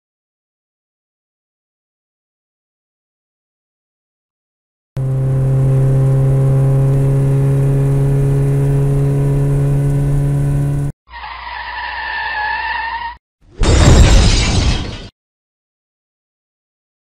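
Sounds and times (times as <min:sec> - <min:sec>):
car engine running loud: 0:05.0 - 0:10.9
tyres squealing: 0:11.1 - 0:13.2.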